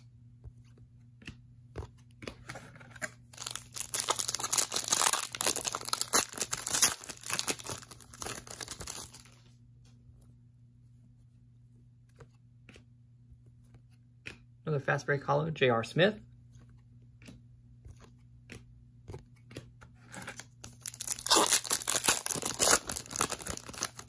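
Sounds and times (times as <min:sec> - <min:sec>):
wrapper tearing and crinkling: 0:03.3 - 0:09.4, 0:20.2 - 0:24.0.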